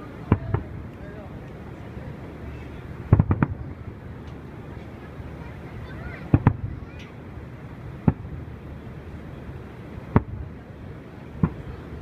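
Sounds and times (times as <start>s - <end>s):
steady background noise: 0.0s - 12.0s
firework shells booming: 0.2s - 1.0s, 3.0s - 5.0s, 6.2s - 7.2s, 7.8s - 9.2s, 10.0s - 10.6s, 11.3s - 11.8s.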